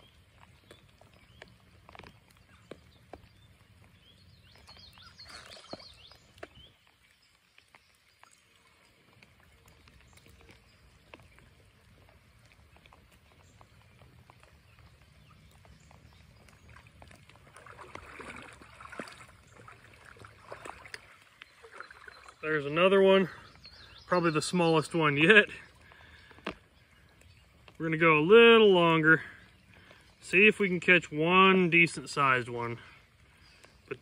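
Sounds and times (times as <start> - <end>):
creek water sloshing: 0.0 - 34.0
raindrops ticking: 0.0 - 34.0
fish splashing out of water: 17.4 - 22.4.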